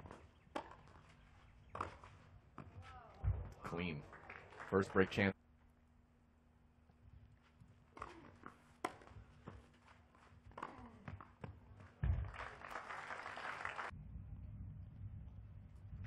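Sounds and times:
tennis ball struck by racquets: 0.1s - 0.9s, 7.9s - 9.7s, 10.5s - 12.3s
crowd applause: 12.2s - 13.9s.

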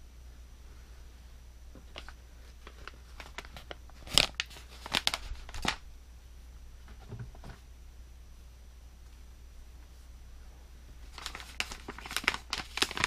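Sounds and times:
packaging crinkling: 1.9s - 5.8s, 11.0s - 13.0s.

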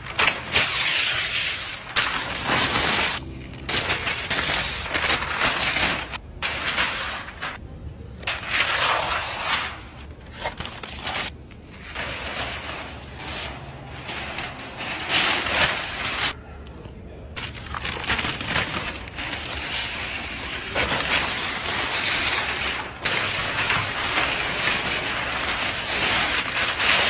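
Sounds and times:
car wrap tearing and crinkling: 0.0s - 27.0s.

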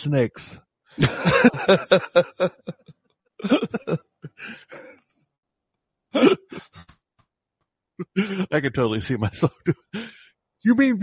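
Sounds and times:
non-speech vocal sounds: 0.0s - 2.8s, 3.4s - 4.9s, 8.0s - 10.2s.

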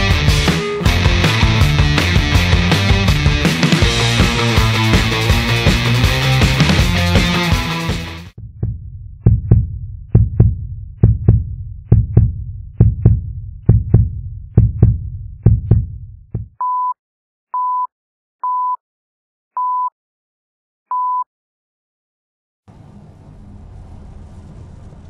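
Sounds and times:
heartbeat-like low thumps: 8.4s - 16.6s.

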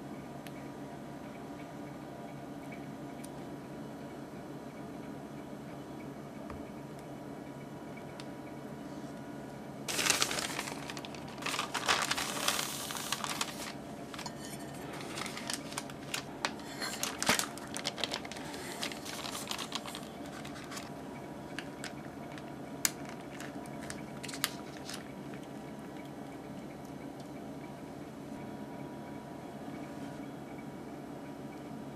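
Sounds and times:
paper and plastic crinkling: 9.9s - 25.6s.

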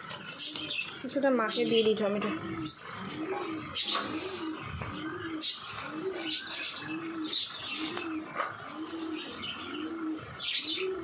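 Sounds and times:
low cooing call: 2.2s - 11.0s.

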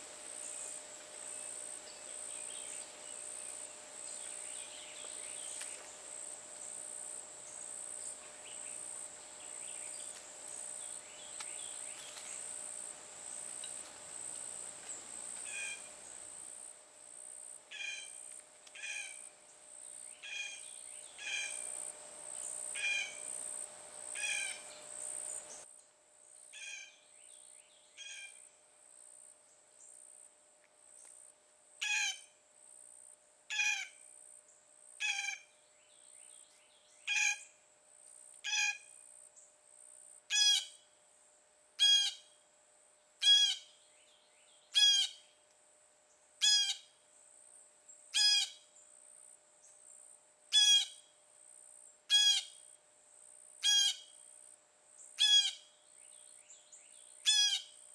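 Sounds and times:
high-pitched pulsing insect chorus: 0.0s - 30.3s
bird harsh call: 15.4s - 15.9s, 17.7s - 18.2s, 18.8s - 19.2s, 20.2s - 20.6s, 21.2s - 21.7s, 22.8s - 23.3s, 24.2s - 24.8s, 35.0s - 35.5s, 41.8s - 42.3s, 43.2s - 43.7s, 44.8s - 45.2s, 46.4s - 46.9s, 52.1s - 52.6s, 53.6s - 54.1s, 55.2s - 55.7s, 57.2s - 57.8s.

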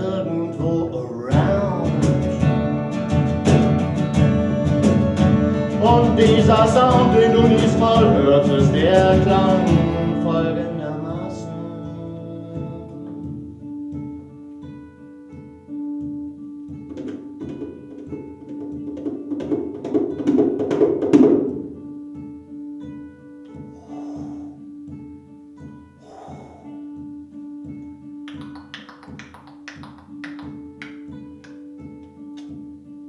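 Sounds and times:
guitar strums: 0.0s - 33.0s
knocks on guitar body: 15.3s - 21.8s.

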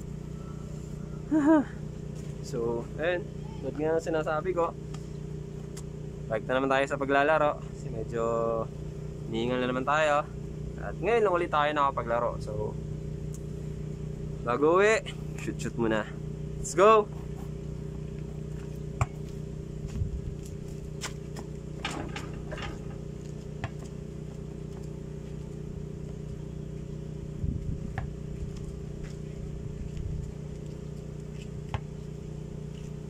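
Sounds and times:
low mechanical hum: 0.0s - 33.0s
basketball bouncing: 18.6s - 19.4s, 21.3s - 25.0s, 27.9s - 28.2s, 31.6s - 32.1s
ball hitting hoop: 19.0s - 19.3s, 21.4s - 24.9s, 27.9s - 28.2s, 31.6s - 32.0s.

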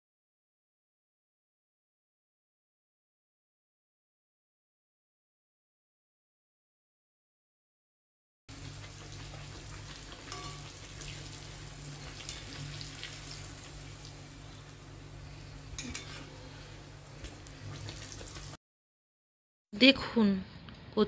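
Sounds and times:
oil sizzling: 8.5s - 18.6s
spatula clicking on pan: 10.2s - 10.7s.

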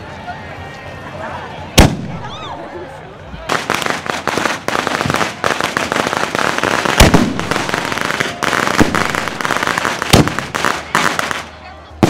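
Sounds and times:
sharp firework bangs: 1.8s - 2.3s, 3.5s - 11.5s
firecrackers crackling: 1.8s - 12.0s.

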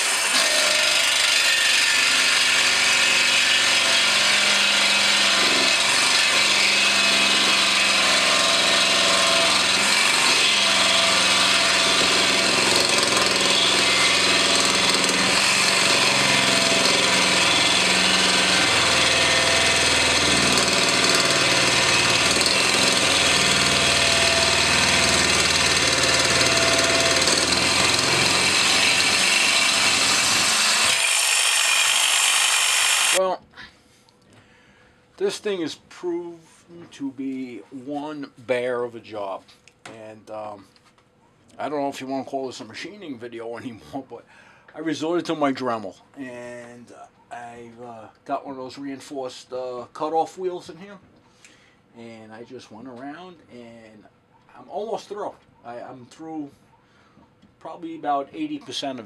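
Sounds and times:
jigsaw cutting metal: 0.0s - 33.2s.

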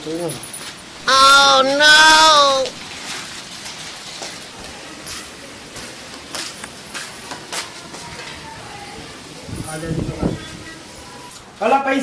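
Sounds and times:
flip-flops slapping on concrete: 4.2s - 8.3s.

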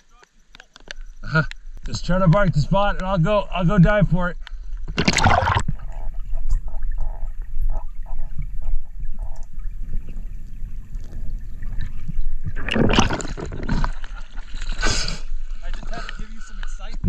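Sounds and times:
underwater bubbling and clicks: 0.2s - 3.2s, 4.4s - 17.0s
muffled underwater rumble: 4.8s - 17.0s
rush of water: 5.0s - 5.8s.

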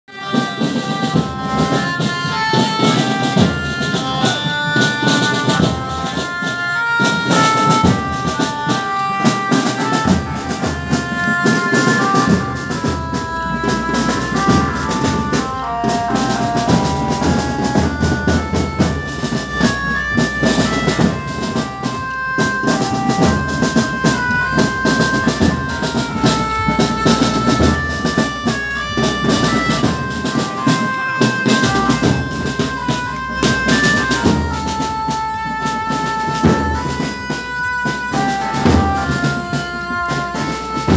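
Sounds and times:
marching drums beating: 0.1s - 40.9s
melody of held notes: 0.1s - 40.9s.

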